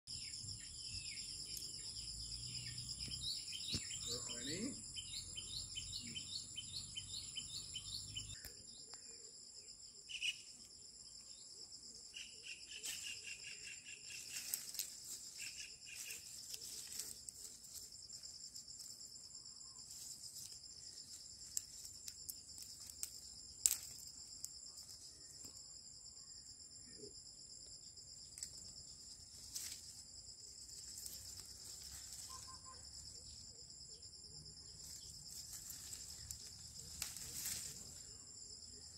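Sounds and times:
bird chirping: 0.1s - 9.3s, 9.9s - 17.3s
insects trilling: 0.1s - 38.9s
bird calling: 15.4s - 16.8s.

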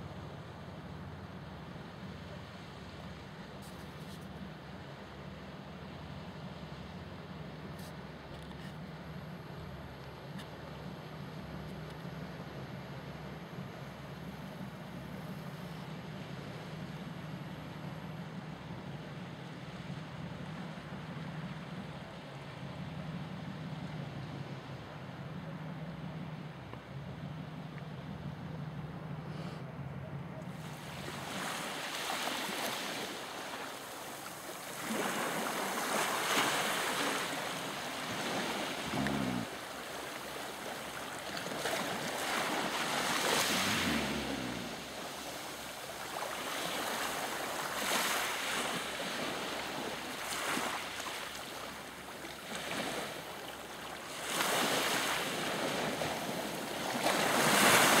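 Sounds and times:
wind: 0.0s - 58.0s
sea waves washing onto pebbles: 30.6s - 51.2s, 54.1s - 58.0s.

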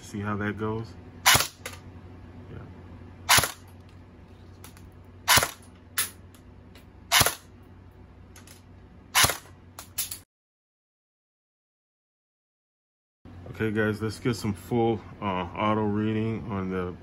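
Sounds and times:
airsoft rifle shots: 1.2s - 1.6s, 3.3s - 3.6s, 5.3s - 5.6s, 7.1s - 7.5s, 9.2s - 9.5s.

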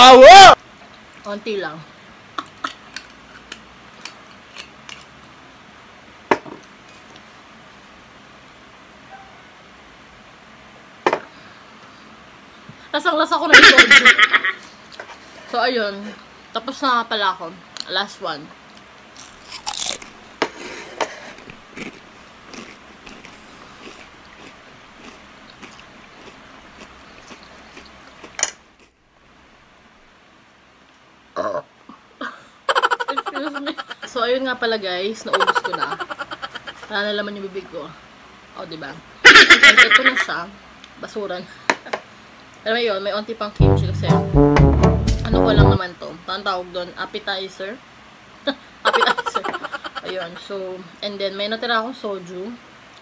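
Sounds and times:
chewing and crunching food: 19.2s - 29.0s
short loud noise burst: 43.6s - 45.8s.

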